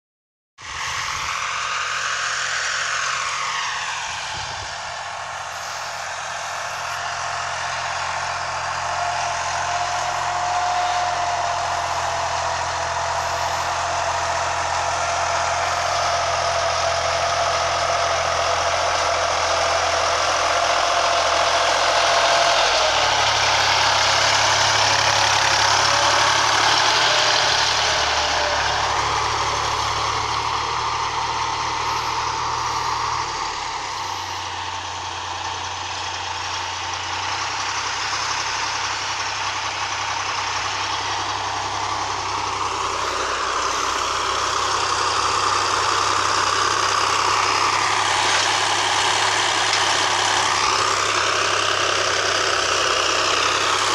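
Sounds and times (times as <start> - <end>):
tractor diesel engine running: 0.6 - 53.9.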